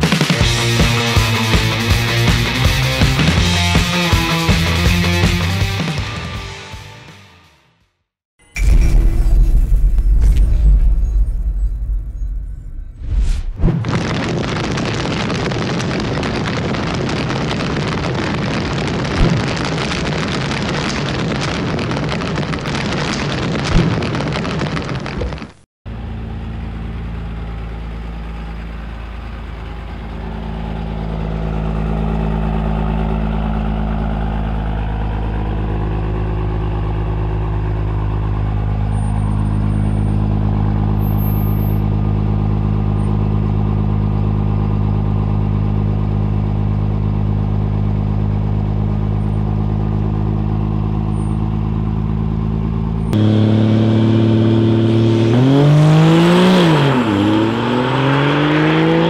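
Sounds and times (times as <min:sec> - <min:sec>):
diesel engine idling: 0:25.9 - 0:55.1.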